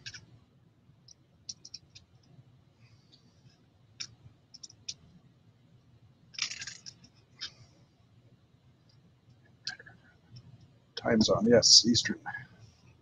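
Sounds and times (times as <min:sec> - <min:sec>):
plastic bricks clicking: 0:06.4 - 0:07.5.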